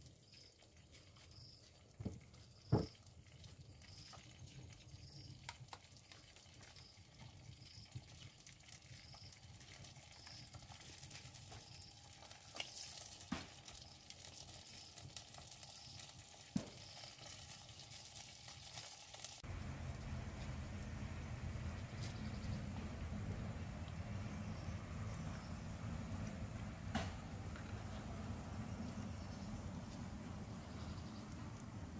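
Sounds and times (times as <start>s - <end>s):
firewood crackling: 0.5s - 31.9s
food sizzling in pot: 4.9s - 21.6s.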